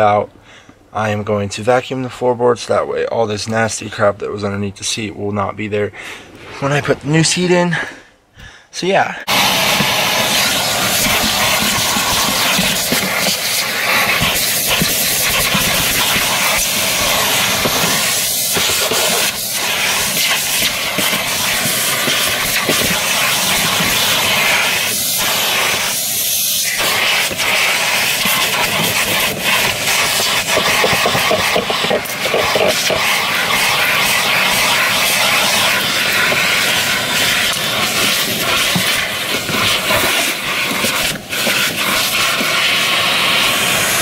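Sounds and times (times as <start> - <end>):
vacuum cleaner hissing: 9.2 - 44.0.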